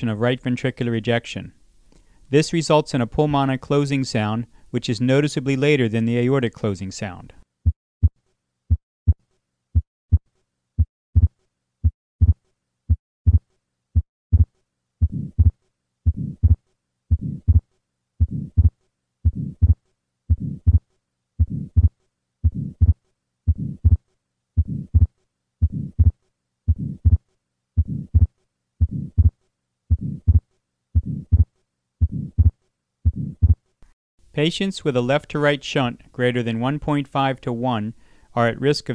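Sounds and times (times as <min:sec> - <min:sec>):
heartbeat: 0:09.8 - 0:10.2, 0:10.8 - 0:20.8, 0:21.4 - 0:24.0, 0:24.6 - 0:27.2, 0:27.8 - 0:33.6
soft heart murmur: 0:11.2 - 0:13.4, 0:14.0 - 0:24.0, 0:24.6 - 0:27.2, 0:27.8 - 0:33.6.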